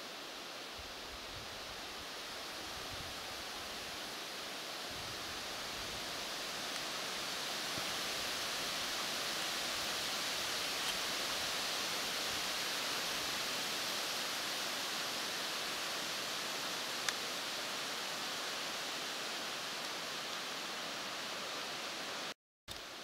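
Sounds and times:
wind rustling through foliage: 0.0 - 23.0.

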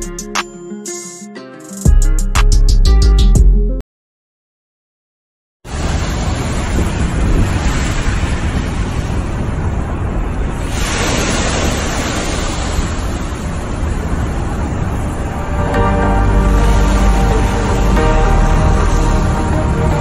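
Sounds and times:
wind rumbling on microphone: 5.7 - 15.7
waves washing onto gravel: 10.6 - 13.7.

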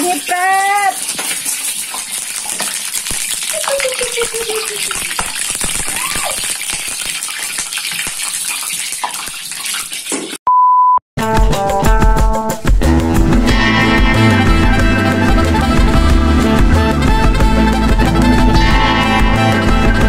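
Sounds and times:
oil sizzling and crackling in wok: 0.0 - 10.4.

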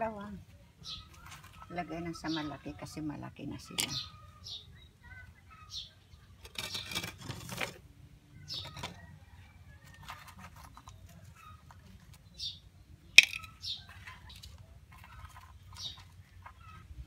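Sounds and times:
flower pots scraping and rustling: 0.0 - 4.2, 5.8 - 17.0.

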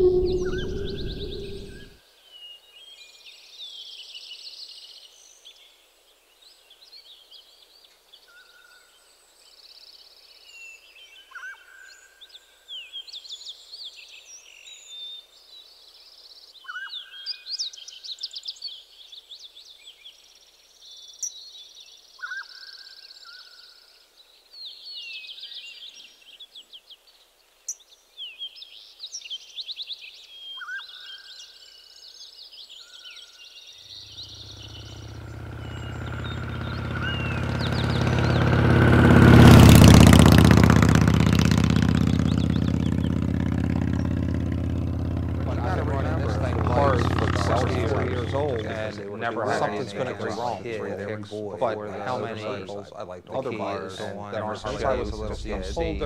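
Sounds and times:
birds and insects chirping: 0.0 - 1.9, 33.8 - 39.2
short whistled note: 0.0 - 1.9.

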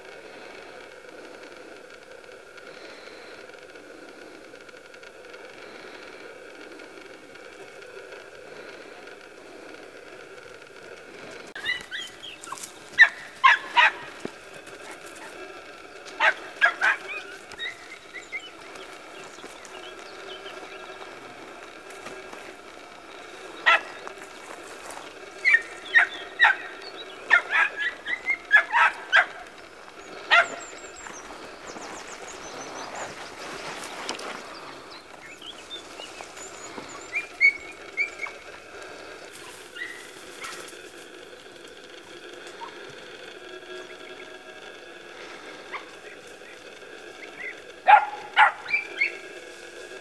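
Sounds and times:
puppies yelping barks: 11.5 - 40.8, 42.0 - 43.0, 43.7 - 50.0.

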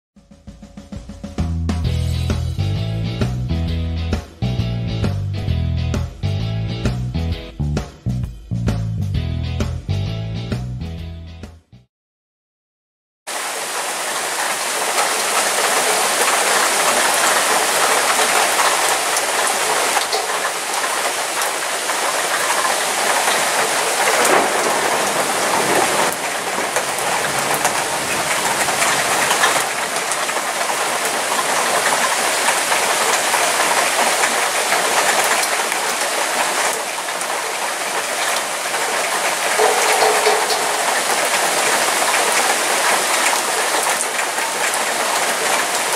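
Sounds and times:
heavy rain falling: 13.3 - 45.9.

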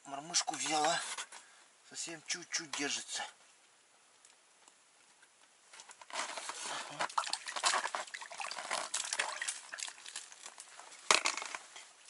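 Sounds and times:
water splashing and sloshing: 6.0 - 12.0.

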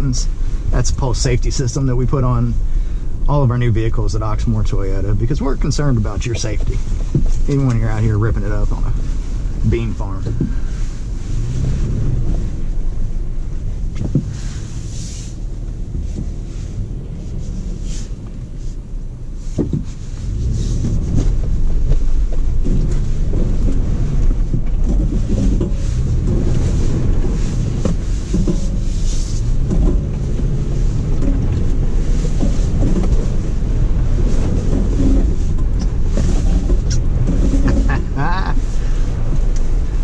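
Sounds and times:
truck engine and tyre rumble: 0.0 - 40.0
knocks from bumps: 19.6 - 20.0.

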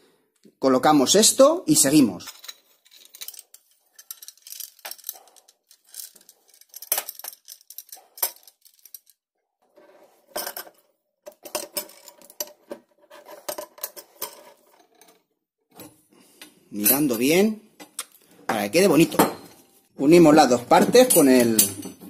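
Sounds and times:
metal pipes clinking: 2.2 - 9.2, 16.8 - 17.5, 18.8 - 22.0.

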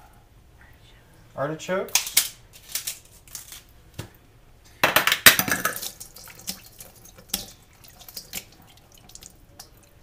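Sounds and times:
brine splashing into colander: 5.4 - 10.0
liquid dripping: 5.4 - 10.0.

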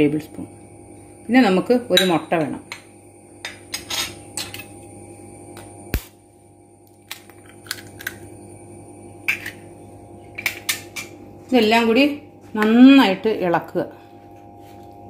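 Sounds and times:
egg cracking into bowl: 7.0 - 8.2.

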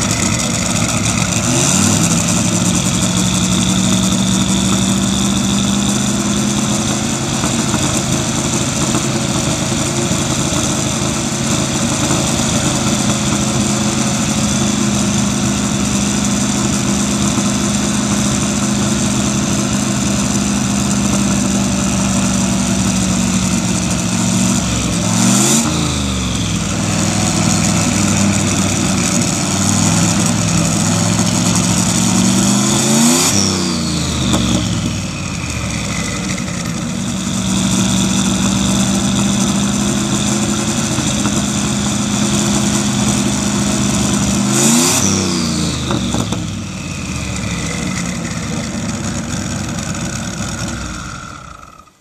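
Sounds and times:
race engine idling and revving: 0.0 - 52.0.

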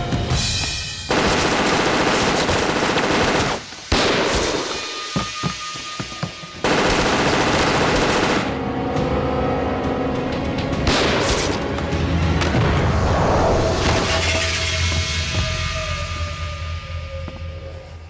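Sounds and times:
automatic gunfire bursts: 1.1 - 4.7, 6.6 - 8.6.

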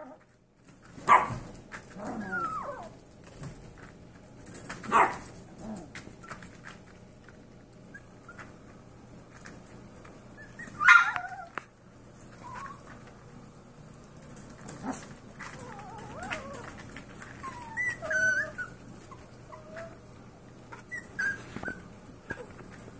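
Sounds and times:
puppies whining and yipping: 2.0 - 3.0, 7.8 - 8.7, 10.2 - 11.6, 12.2 - 13.0, 14.7 - 22.9.

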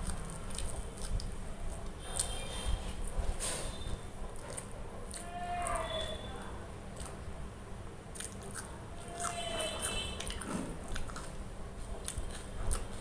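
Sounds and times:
chewing and biting food: 0.0 - 3.4, 4.2 - 6.2, 6.8 - 13.0
wet mouth smacks and clicks: 8.1 - 9.4.

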